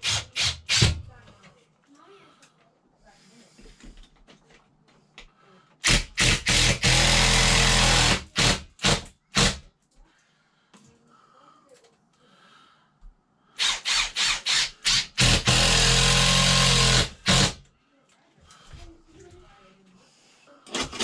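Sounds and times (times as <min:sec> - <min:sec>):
drill cutting through plaster: 0:00.0 - 0:01.0, 0:05.8 - 0:09.6, 0:13.6 - 0:17.6, 0:20.7 - 0:21.0.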